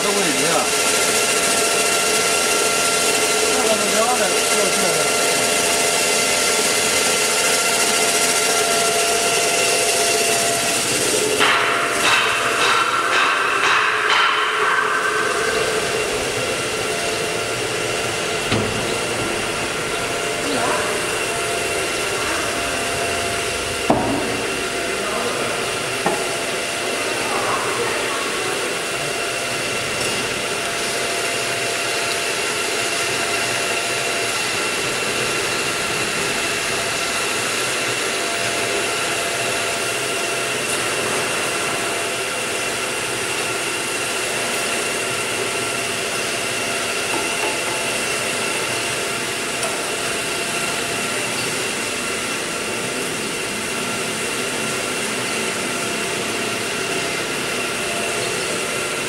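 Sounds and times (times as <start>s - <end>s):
hydraulic press motor whining: 15.0s - 59.0s.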